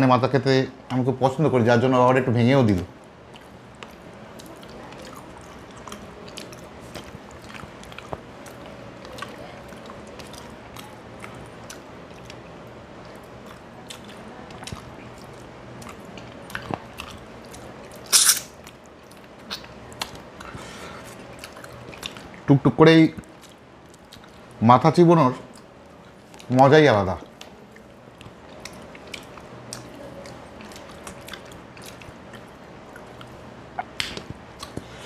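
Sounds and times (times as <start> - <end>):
chewing with wet clicks and crunches: 3.2 - 22.5, 23.2 - 24.6, 25.4 - 35.0.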